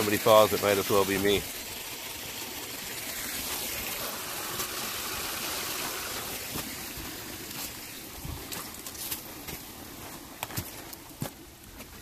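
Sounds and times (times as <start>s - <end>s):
stream water rushing: 0.0s - 12.0s.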